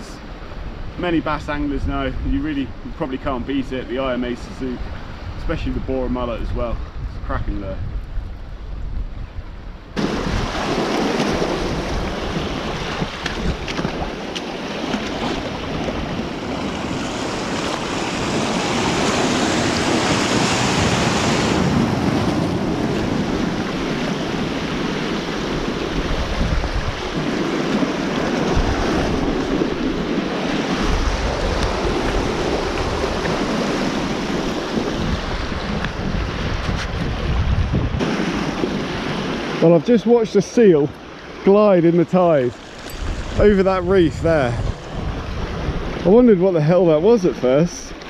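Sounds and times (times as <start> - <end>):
wind buffeting microphone: 0.0 - 39.6, 42.4 - 47.6
sea water rushing over rocks: 10.0 - 48.0.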